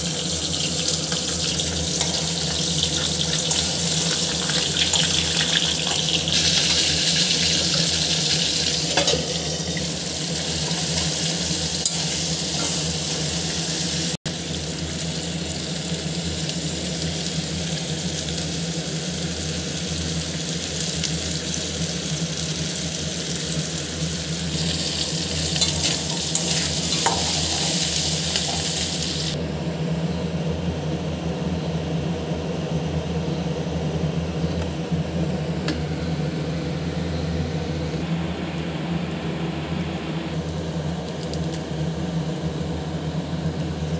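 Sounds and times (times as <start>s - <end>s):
fish frying in oil: 0.0s - 29.4s
steady low hum: 0.0s - 43.9s.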